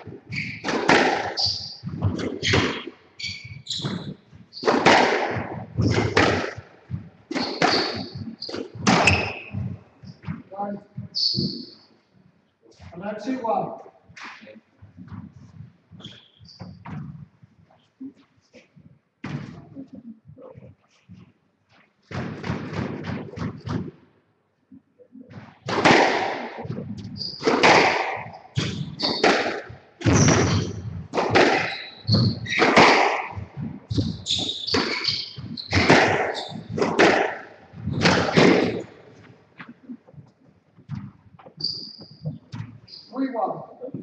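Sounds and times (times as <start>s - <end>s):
squash ball impacts echoing: 0.0s - 11.8s, 19.2s - 20.0s, 22.1s - 24.0s, 25.2s - 44.0s
shoes squeaking on wooden floor: 0.0s - 11.9s, 13.8s - 21.2s, 26.6s - 44.0s.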